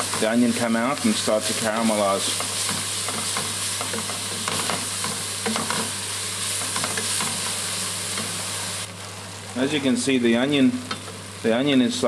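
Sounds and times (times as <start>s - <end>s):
onions sizzling in a pot: 0.0s - 12.0s
wooden spatula scraping a pan: 1.5s - 8.4s.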